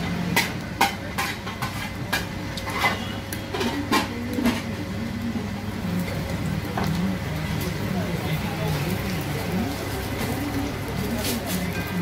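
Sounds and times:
spatula clinking on iron griddle: 0.1 - 4.6.

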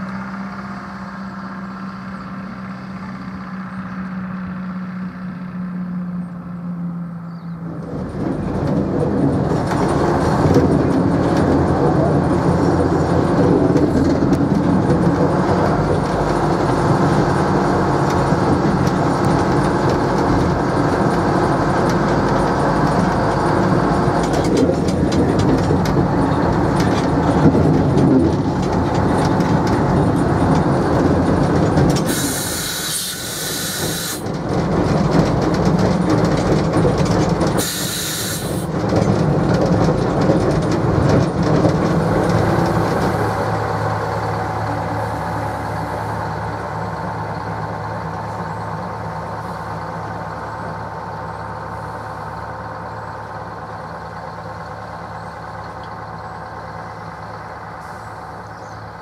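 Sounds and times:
diesel locomotive engine running: 0.0 - 59.0
wheels clicking over rail joints: 6.2 - 59.0
air hiss bursts: 32.1 - 34.2, 37.6 - 38.7.

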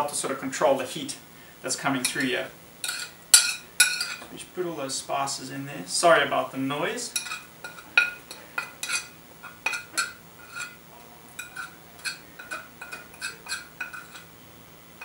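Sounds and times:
metal spoon scraping ceramic plate: 2.0 - 4.3, 7.1 - 10.8, 11.4 - 14.3.

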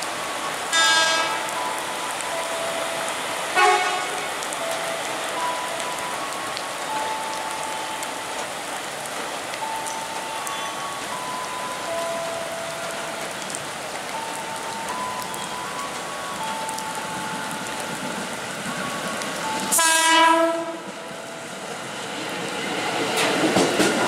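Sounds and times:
heavy rain: 0.0 - 24.0
train horn blast: 0.7 - 1.6, 3.5 - 4.3, 19.7 - 21.0.

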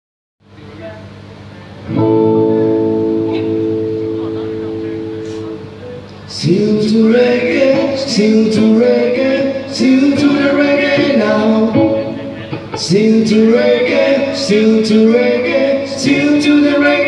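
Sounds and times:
electric guitar: 1.8 - 17.0
man singing into a microphone: 6.3 - 17.0.

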